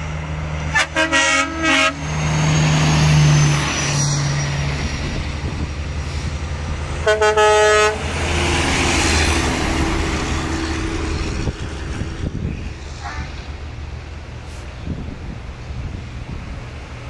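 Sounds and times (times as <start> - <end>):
truck diesel engines rumbling: 0.0 - 17.0
truck horn blasts: 0.7 - 2.1, 7.0 - 8.2.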